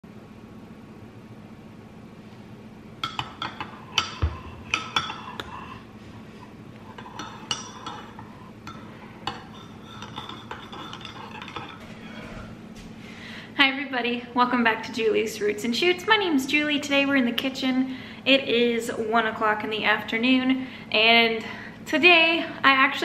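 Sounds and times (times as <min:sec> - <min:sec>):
spoon clinking in a ceramic mug: 0:03.0 - 0:05.8, 0:06.9 - 0:11.8.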